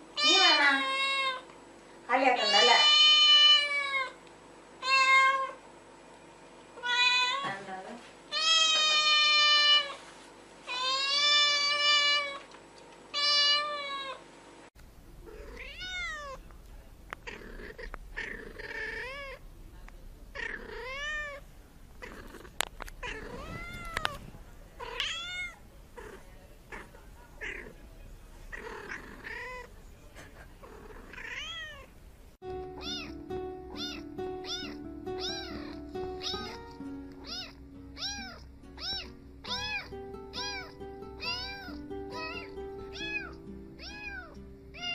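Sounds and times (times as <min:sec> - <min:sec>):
kitten meowing loudly: 0:02.4 - 0:04.2, 0:04.8 - 0:05.6, 0:06.8 - 0:07.5, 0:08.3 - 0:10.0, 0:13.1 - 0:14.2, 0:15.4 - 0:16.4, 0:23.0 - 0:24.2, 0:33.8 - 0:36.6, 0:37.2 - 0:44.9
cat meowing softly: 0:06.8 - 0:07.6, 0:15.3 - 0:16.4, 0:23.0 - 0:24.2, 0:24.8 - 0:27.7, 0:31.1 - 0:31.9, 0:32.8 - 0:33.2, 0:33.8 - 0:36.6, 0:37.2 - 0:44.9.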